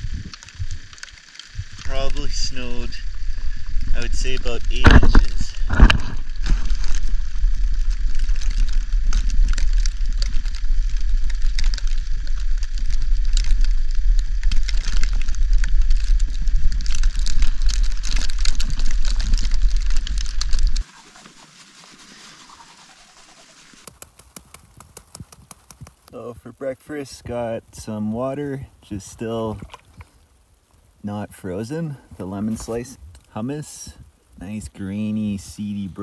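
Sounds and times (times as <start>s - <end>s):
wind buffeting microphone: 0.0s - 20.8s
crackle of snow: 0.0s - 36.0s.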